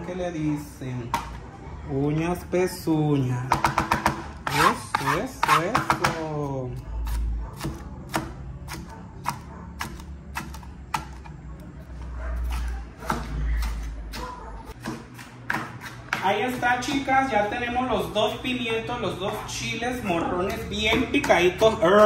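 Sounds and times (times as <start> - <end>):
knife chopping on plastic board: 3.5 - 6.4, 7.0 - 11.4, 12.0 - 17.2, 20.3 - 22.0.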